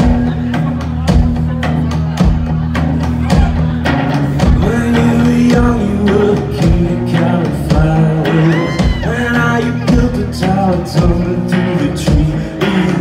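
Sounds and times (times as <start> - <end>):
drums: 0.0 - 13.0
electric guitar: 0.0 - 13.0
man singing: 4.3 - 13.0.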